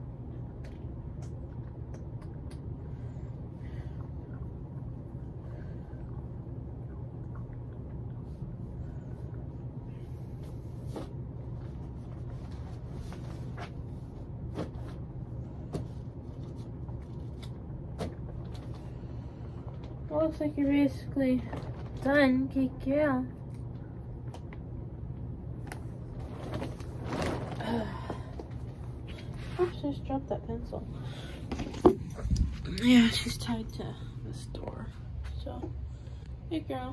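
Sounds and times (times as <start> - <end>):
steady low hum: 0.0 - 36.9.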